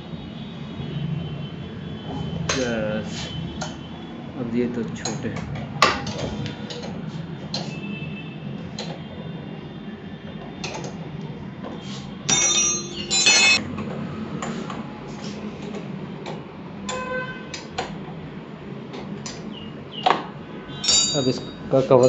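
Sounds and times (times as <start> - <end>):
metal tools clinking: 12.3 - 13.6, 20.8 - 22.0
ringing metallic clinks: 12.3 - 13.6, 20.8 - 22.0.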